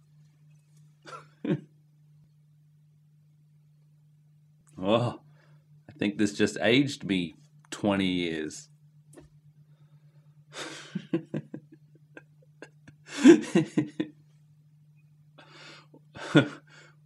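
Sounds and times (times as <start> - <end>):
steady low hum: 0.0 - 17.0
man chuckling and gasping: 1.0 - 1.7, 10.5 - 14.1, 15.4 - 17.0.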